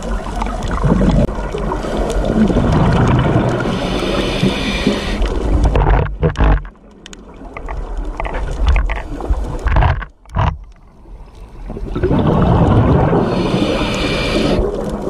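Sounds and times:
regulator exhaled bubbles rumbling: 0.0 - 6.6, 11.6 - 15.0.

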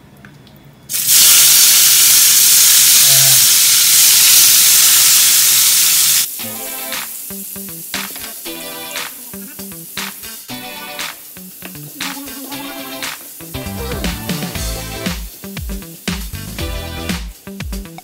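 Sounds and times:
tomatoes sizzling in oil: 0.9 - 18.0
background music: 6.3 - 18.0.

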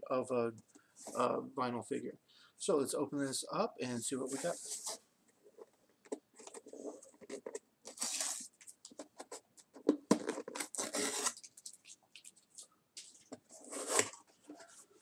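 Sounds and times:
cardboard ripping: 7.9 - 8.5, 10.4 - 11.5, 13.6 - 14.2
packaging scrapes and clicks: 10.3 - 11.5.

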